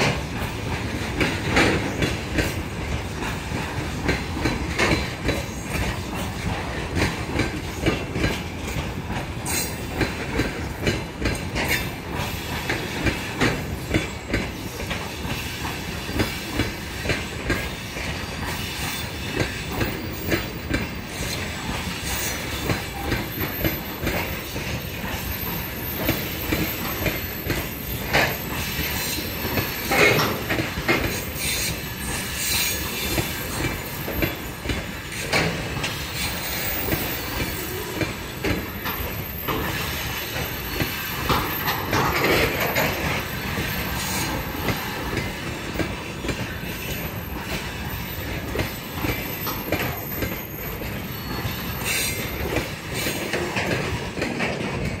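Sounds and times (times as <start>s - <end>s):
freight train wheels rumbling: 0.0s - 55.0s
wheel squeals: 21.1s - 53.5s.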